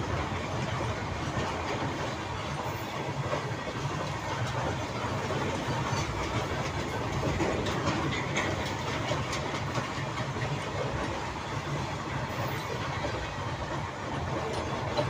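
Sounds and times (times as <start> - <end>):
train wheels rumbling on rails: 0.0 - 15.0
wheels clicking over rail joints: 0.0 - 15.0.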